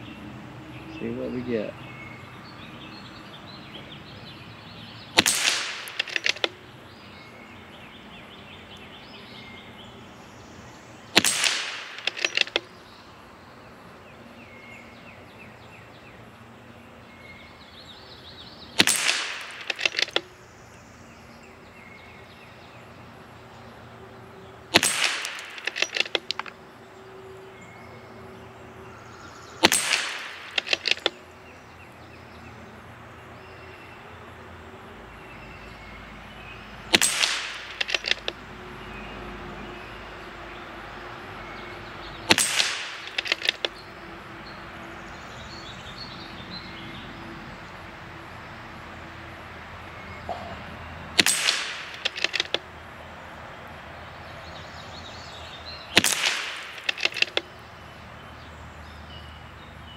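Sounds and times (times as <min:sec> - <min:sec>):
rifle shot crack: 0:05.2 - 0:06.5, 0:11.1 - 0:12.7, 0:18.8 - 0:20.2, 0:24.7 - 0:26.5, 0:29.6 - 0:31.1, 0:36.9 - 0:38.4, 0:42.3 - 0:43.7, 0:51.2 - 0:52.6, 0:55.9 - 0:57.4
rifle bolt clicks: 0:05.2 - 0:06.6, 0:11.2 - 0:12.7, 0:18.8 - 0:20.3, 0:24.7 - 0:26.6, 0:29.6 - 0:31.2, 0:36.9 - 0:38.4, 0:42.3 - 0:43.8, 0:51.2 - 0:52.7, 0:56.0 - 0:57.5.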